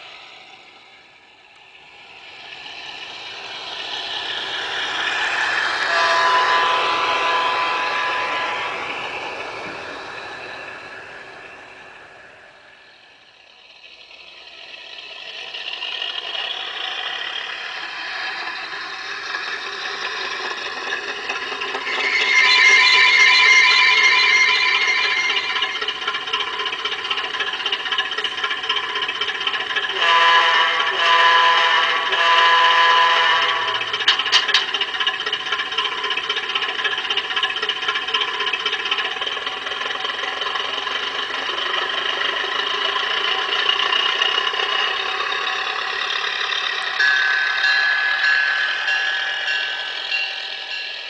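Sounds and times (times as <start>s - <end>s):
model locomotive engine sound: 0.0s - 51.0s
train wheels rattling on track: 0.0s - 51.0s
steady high tone: 3.1s - 13.2s, 20.4s - 28.0s
short pitched horn blasts: 5.9s - 9.7s, 30.0s - 33.9s.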